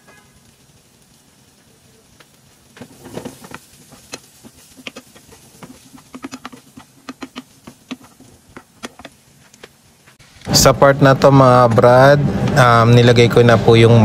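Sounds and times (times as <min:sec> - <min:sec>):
wooden spoon stirring in frying pan: 0:01.5 - 0:10.2.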